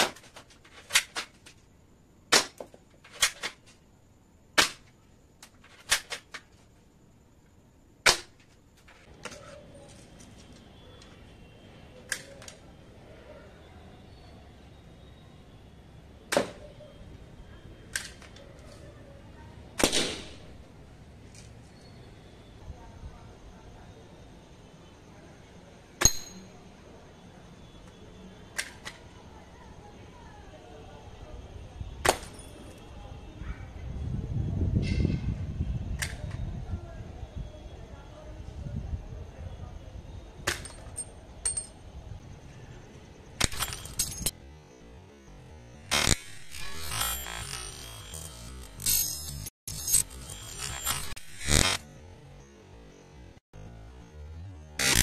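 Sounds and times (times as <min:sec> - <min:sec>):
toy gun shots snapping: 0:19.8 - 0:20.4
high metallic clink: 0:26.0 - 0:26.6, 0:40.5 - 0:41.8, 0:43.4 - 0:44.3.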